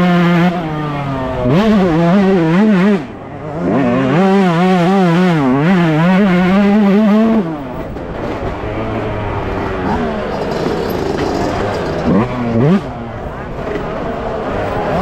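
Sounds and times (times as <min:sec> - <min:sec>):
two-stroke engine revving: 0:00.0 - 0:13.8.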